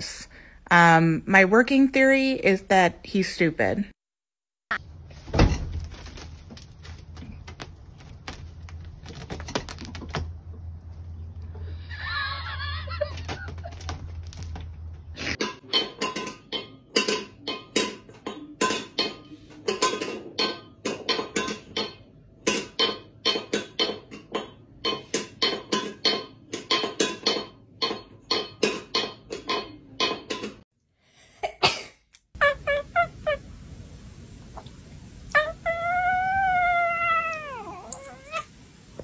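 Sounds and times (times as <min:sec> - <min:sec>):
metal bowl clanking on tile floor: 0:15.4 - 0:30.6.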